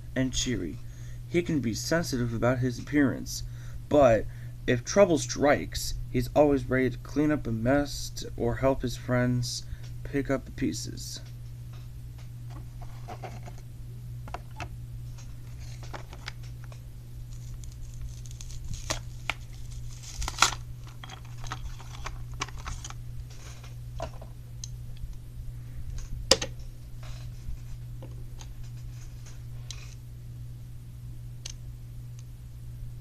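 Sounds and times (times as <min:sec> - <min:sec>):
steady low hum: 0:00.0 - 0:33.0
plastic packaging rustling: 0:15.4 - 0:24.2.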